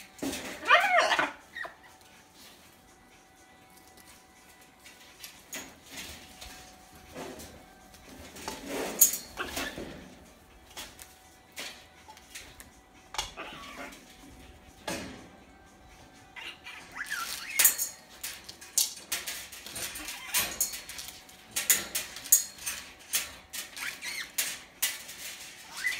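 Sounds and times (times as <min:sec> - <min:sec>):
clicks and clinks on wire cage: 0:00.0 - 0:02.6, 0:03.6 - 0:15.4, 0:16.0 - 0:25.9.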